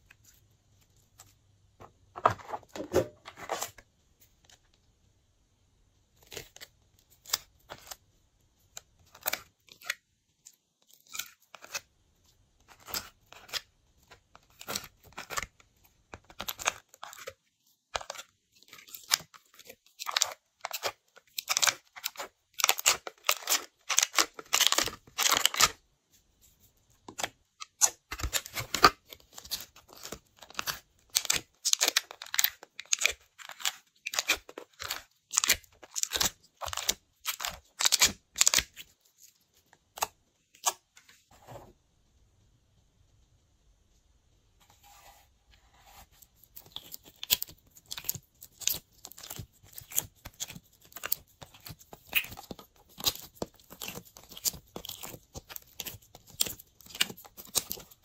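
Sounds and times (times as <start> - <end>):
spatula scraping plastic palette: 2.2 - 3.8, 8.7 - 25.8, 26.9 - 41.7, 44.6 - 58.0
slime popping and crackling: 46.7 - 58.0.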